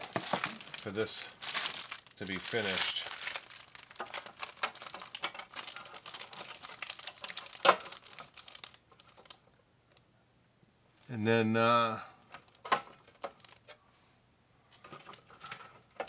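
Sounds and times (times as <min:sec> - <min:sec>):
plastic bag crinkling: 0:00.0 - 0:09.6, 0:12.3 - 0:13.8.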